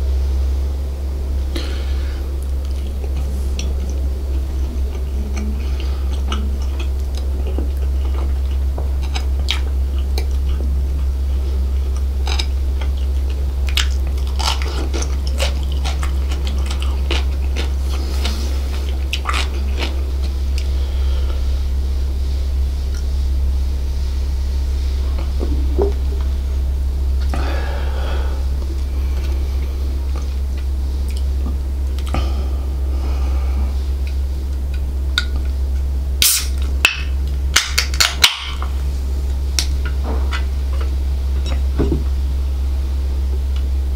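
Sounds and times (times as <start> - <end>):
steady low hum: 0.0 - 43.9
biting and chewing: 1.5 - 23.2, 25.0 - 42.2
mouth clicks and crackles: 2.4 - 21.4, 30.1 - 32.3, 34.0 - 41.7.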